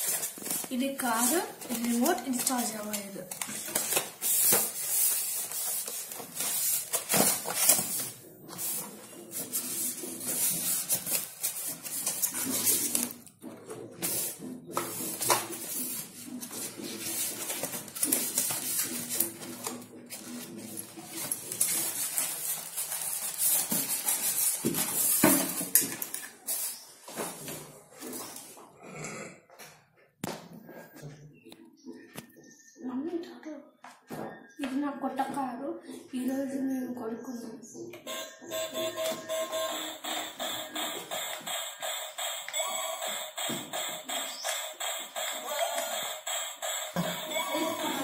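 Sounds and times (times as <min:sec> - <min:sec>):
styrofoam and plastic wrapper rustling: 0:00.0 - 0:13.3, 0:14.0 - 0:26.8.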